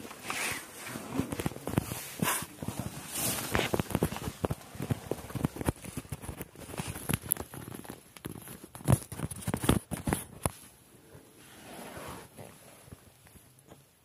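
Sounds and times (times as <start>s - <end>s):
plastic bags rustling: 0.0s - 10.3s.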